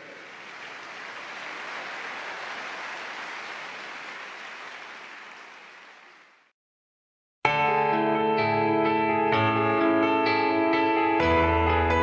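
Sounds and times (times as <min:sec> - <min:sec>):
stadium crowd applauding: 0:00.0 - 0:06.5.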